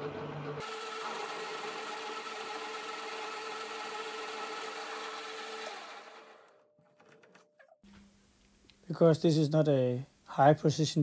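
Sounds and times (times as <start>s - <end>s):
lathe winding down: 0.4s - 7.4s
metal lathe whining: 0.5s - 7.4s.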